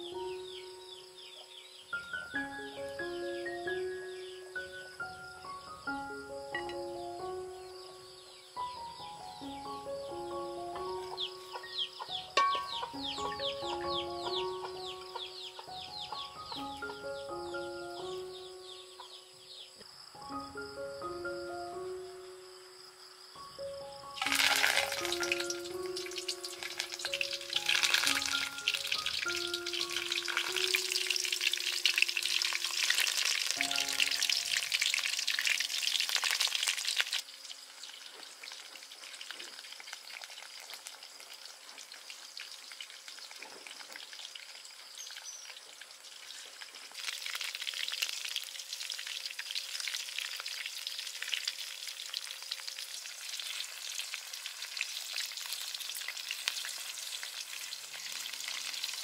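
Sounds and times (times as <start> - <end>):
music notes: 0.0 - 19.4, 20.2 - 36.2
meat rolls sizzling in oil: 24.1 - 59.0.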